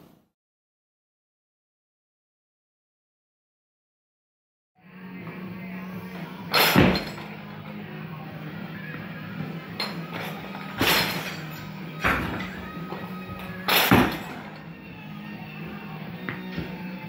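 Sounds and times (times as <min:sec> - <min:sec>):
barbell clanking: 0:06.5 - 0:07.8, 0:09.7 - 0:14.8.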